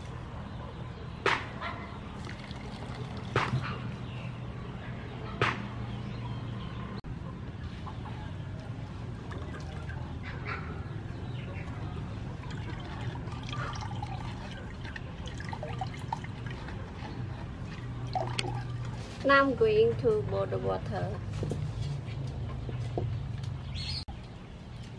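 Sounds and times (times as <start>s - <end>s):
liquid trickling into a pot: 2.2s - 3.4s, 9.2s - 10.1s, 12.4s - 19.1s.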